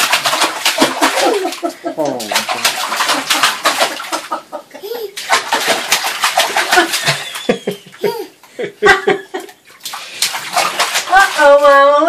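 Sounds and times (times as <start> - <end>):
bath water splashing: 0.0 - 12.0
toddlers laughing and squealing: 4.7 - 5.3, 7.7 - 8.4.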